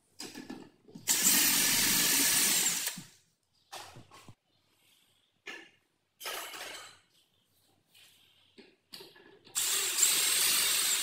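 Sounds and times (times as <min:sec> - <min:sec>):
cordless drill driving screw: 0:01.1 - 0:03.0, 0:09.6 - 0:11.0.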